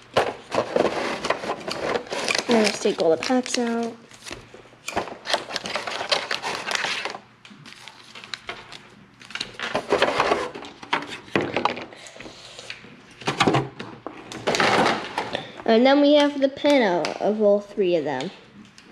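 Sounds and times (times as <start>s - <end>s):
foil packs crinkling: 0.2s - 10.6s.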